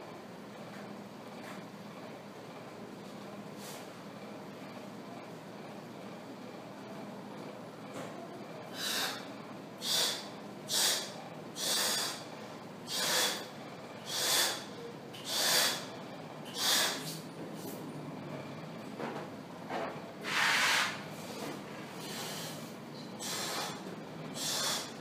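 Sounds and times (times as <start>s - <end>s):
person blowing up balloon: 9.8s - 12.2s, 12.9s - 13.5s, 14.1s - 15.9s, 16.5s - 17.2s, 20.2s - 21.0s, 22.0s - 23.8s, 24.4s - 25.0s.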